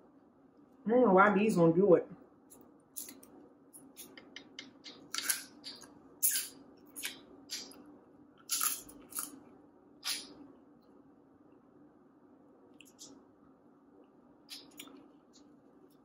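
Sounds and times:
wet mouth sounds: 10.0 - 10.3, 14.5 - 15.0.

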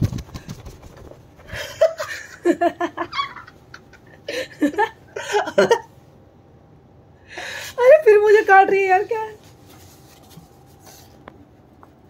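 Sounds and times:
woman laughing: 1.5 - 5.9.

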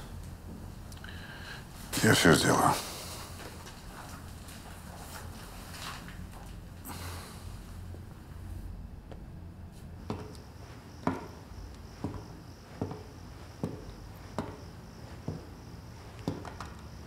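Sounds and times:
faint steady hiss: 0.0 - 17.0
man's footsteps walking: 1.8 - 7.0, 9.0 - 17.0.

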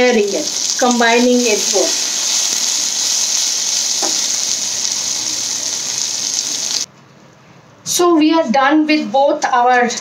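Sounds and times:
okra sizzling in oil: 0.0 - 6.9.

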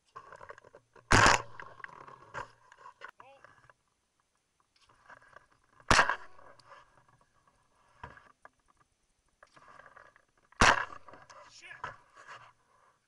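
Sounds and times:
shotgun shot: 1.1 - 1.7, 5.9 - 6.5, 10.6 - 11.2.

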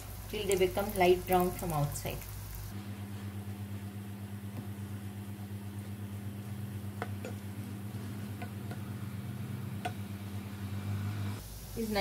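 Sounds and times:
food sizzling in hot oil: 0.0 - 2.8, 10.8 - 12.0
steady low hum: 0.0 - 12.0.

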